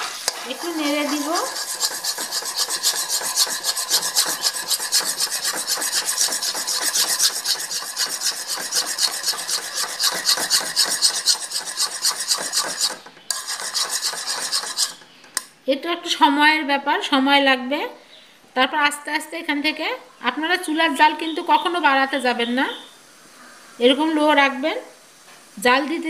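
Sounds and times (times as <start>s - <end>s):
spoon scraping metal pan: 0.0s - 15.2s.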